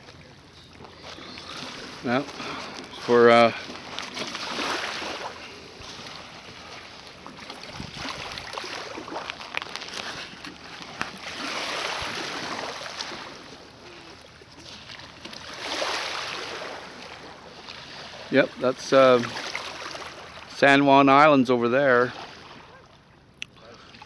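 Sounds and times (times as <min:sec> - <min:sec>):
small waves lapping: 0:00.0 - 0:24.0
wind gusts on microphone: 0:07.6 - 0:08.6.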